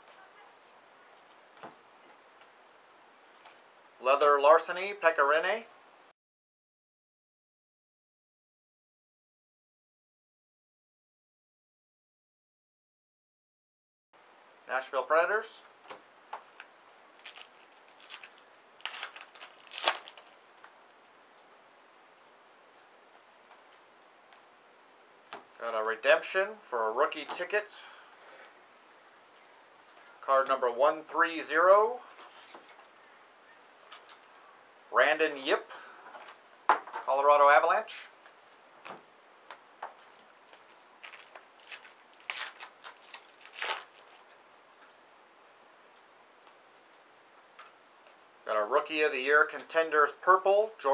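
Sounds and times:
cards rustling and flicking: 15.9s - 20.8s, 39.5s - 44.3s
wrapper crinkle: 16.5s - 20.8s, 40.0s - 44.4s.

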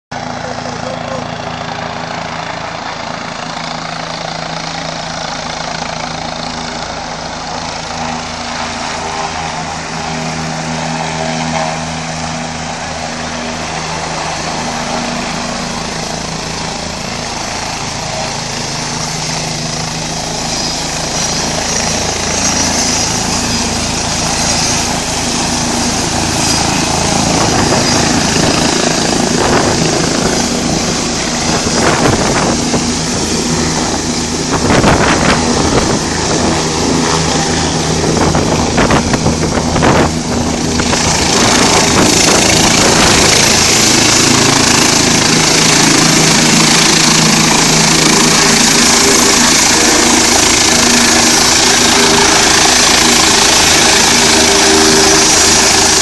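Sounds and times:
helicopter turbine and rotor: 0.1s - 56.0s.

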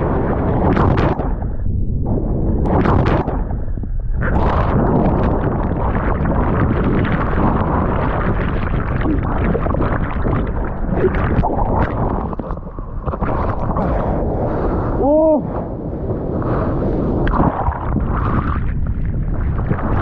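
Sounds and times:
muffled underwater water rumble: 0.0s - 20.0s.

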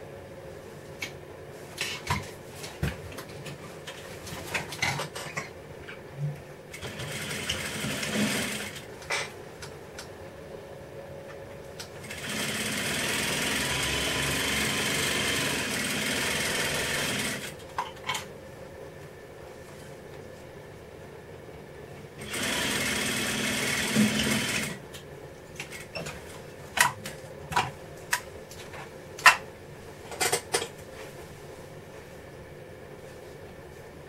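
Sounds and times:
sewing machine stitching: 6.8s - 8.8s, 12.0s - 17.6s, 22.2s - 24.8s.

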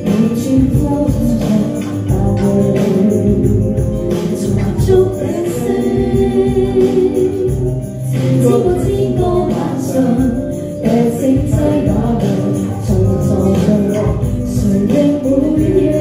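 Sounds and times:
karaoke backing track: 0.0s - 16.0s
woman singing into a microphone: 0.0s - 16.0s.

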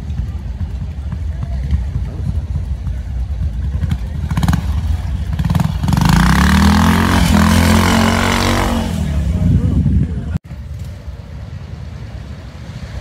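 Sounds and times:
motorcycle engine revving: 0.0s - 10.2s.

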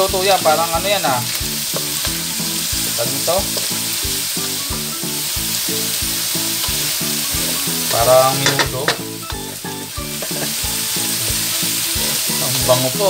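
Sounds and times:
meat sizzling in a wok: 0.0s - 13.0s
wooden spatula scraping a pan: 10.1s - 10.6s.

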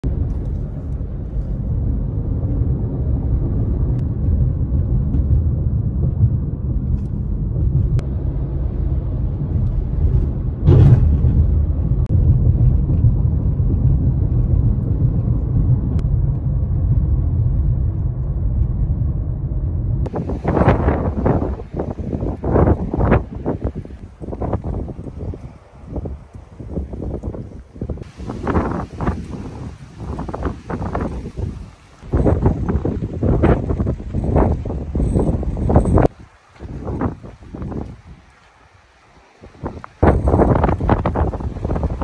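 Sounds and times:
car cabin road and engine rumble: 0.0s - 38.6s, 39.7s - 42.0s
brief loud rushing noise: 10.1s - 12.2s.

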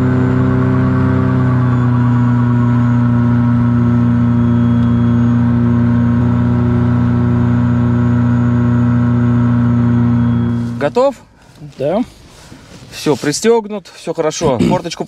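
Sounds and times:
two-stroke engine droning: 0.0s - 10.9s.

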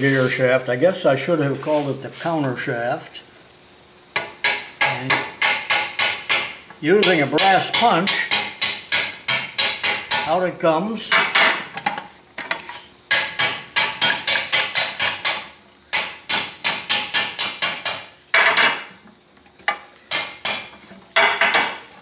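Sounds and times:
hammer tapping metal punch: 4.2s - 10.4s, 13.1s - 18.8s.

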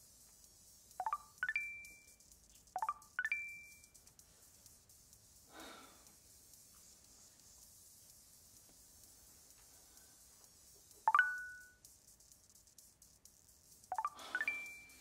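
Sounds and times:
electronic notification chime: 11.1s - 11.7s, 14.0s - 15.0s.

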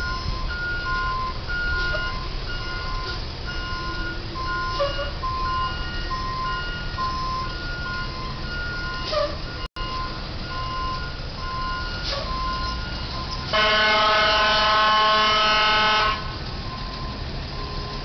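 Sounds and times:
engine and traffic rumble: 0.0s - 18.0s
reversing alarm beeping: 0.0s - 18.0s
vehicle horn blast: 13.5s - 16.3s.

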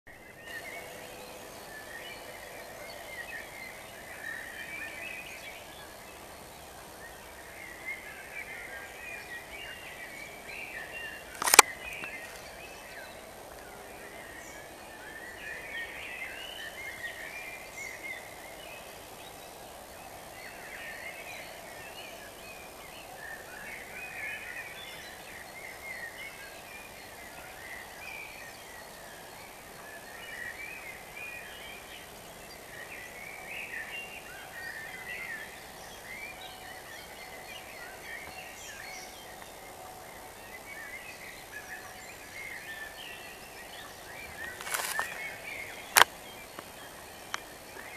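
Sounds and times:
faint steady background hum: 0.1s - 47.9s
songbirds singing: 0.1s - 47.9s
sharp click: 11.4s - 12.2s.

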